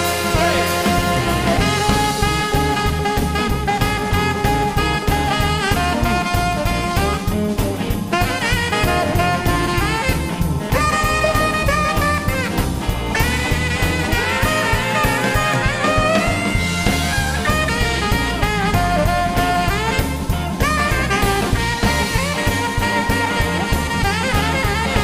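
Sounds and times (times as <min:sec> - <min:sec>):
drum kit: 0:00.0 - 0:25.0
live blues band: 0:00.0 - 0:25.0
tenor saxophone soloing: 0:00.0 - 0:25.0.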